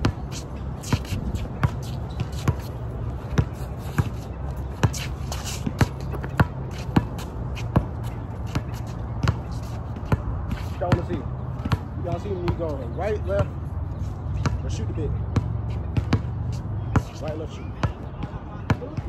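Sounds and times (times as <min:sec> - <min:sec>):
shuffling footsteps: 0:00.0 - 0:11.2
basketball bouncing on hard court: 0:05.6 - 0:07.9.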